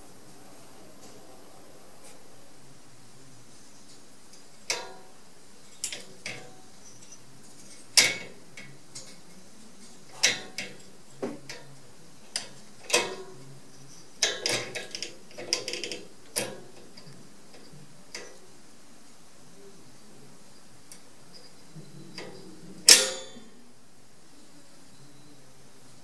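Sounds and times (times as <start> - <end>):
cage door latch rattling: 14.2 - 17.1.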